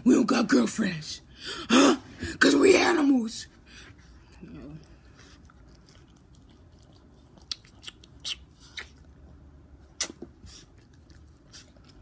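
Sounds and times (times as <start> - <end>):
kissing smacks: 7.4 - 9.0, 9.9 - 10.3.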